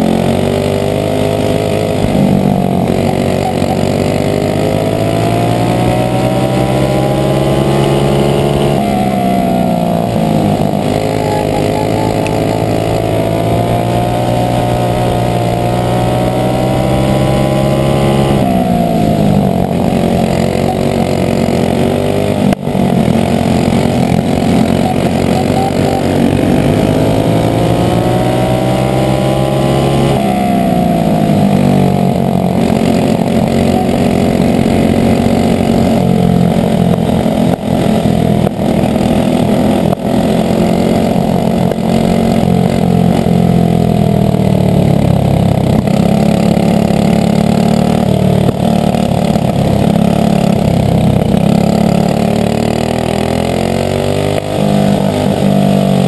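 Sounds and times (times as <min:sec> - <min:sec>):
kart engine at racing speed: 0:00.0 - 0:56.0.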